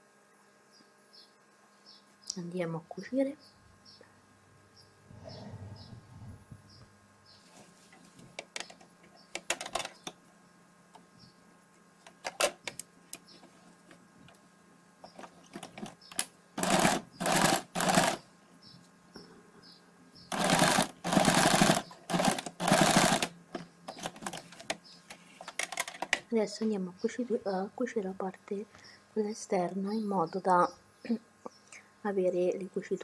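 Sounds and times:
sewing machine stitching: 16.6s - 18.2s, 20.3s - 23.3s.

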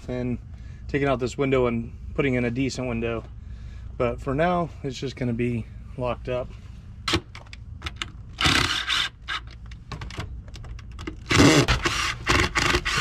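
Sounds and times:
drill driving screws into wood: 8.4s - 9.5s, 11.2s - 13.0s.

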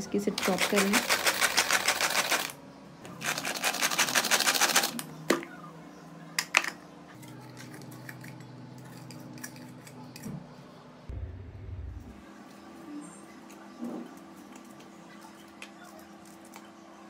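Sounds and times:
manual onion chopper clattering: 0.4s - 2.5s.

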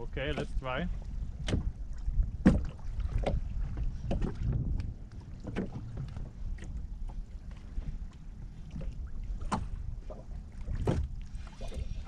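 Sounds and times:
boat knocking: 0.0s - 7.2s, 10.6s - 11.9s
wind rumbling on microphone: 0.0s - 12.0s.

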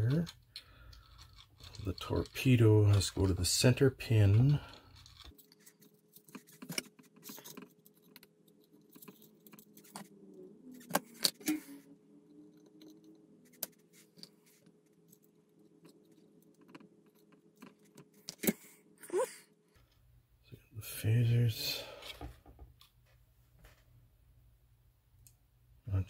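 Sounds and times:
small parts and tools rattling: 0.0s - 10.1s.

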